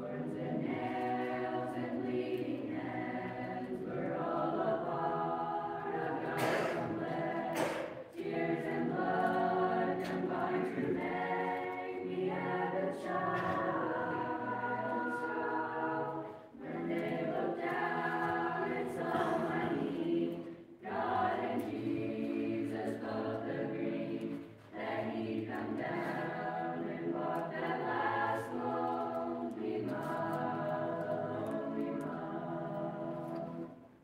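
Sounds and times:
children's choir singing unaccompanied: 0.0 - 34.0.

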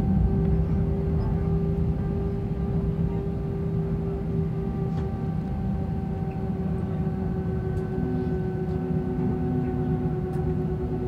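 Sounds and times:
low rumble: 0.0 - 4.1
jet engines idling: 0.0 - 11.0.

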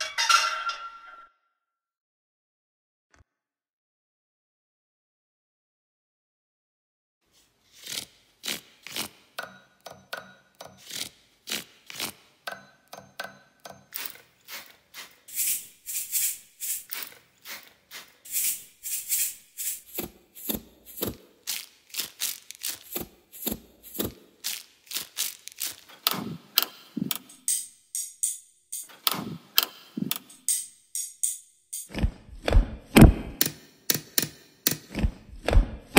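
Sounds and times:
percussive clicks and taps: 12.5 - 14.2, 26.0 - 32.1, 33.0 - 35.6.

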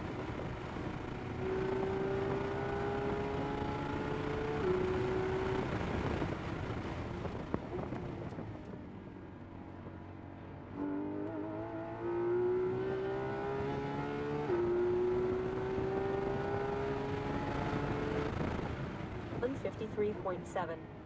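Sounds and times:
car engine revving: 0.0 - 7.8, 10.7 - 20.6
wind noise: 4.5 - 8.8, 16.9 - 19.7.

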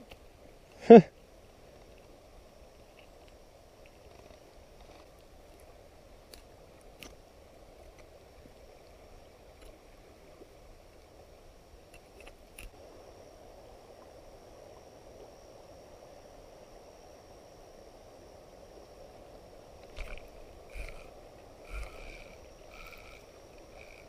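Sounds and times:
quiet outdoor background: 0.0 - 24.0
thin high steady tone: 12.7 - 24.0.

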